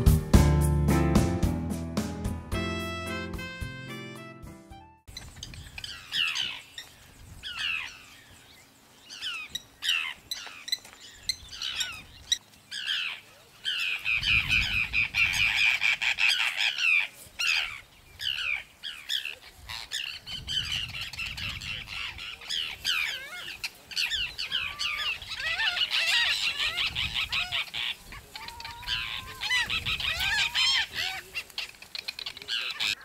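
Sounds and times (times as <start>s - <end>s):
terns calling harshly: 5.1s - 33.0s.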